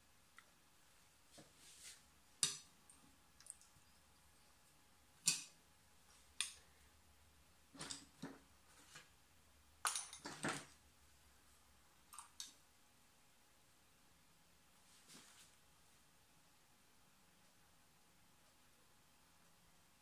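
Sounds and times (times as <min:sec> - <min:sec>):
brush strokes on paper: 0:01.3 - 0:02.1, 0:14.8 - 0:15.6.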